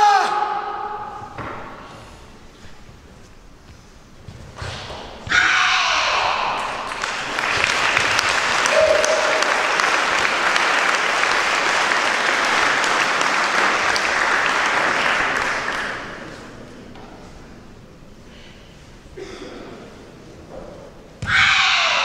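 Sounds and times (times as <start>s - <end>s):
audience applauding: 6.3s - 16.4s.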